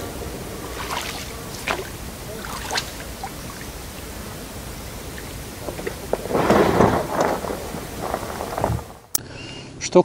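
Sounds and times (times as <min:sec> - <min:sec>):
oars splashing in water: 0:00.6 - 0:03.8.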